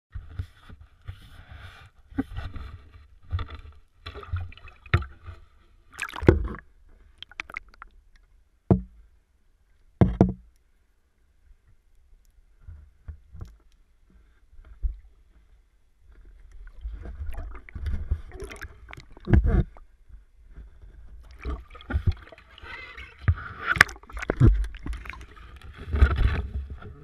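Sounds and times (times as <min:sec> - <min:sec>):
water noise on camera housing: 0:02.2 - 0:08.9, 0:16.4 - 0:19.9, 0:21.1 - 0:26.8
net splashing into water: 0:05.9 - 0:06.6, 0:17.1 - 0:19.4, 0:21.3 - 0:25.3.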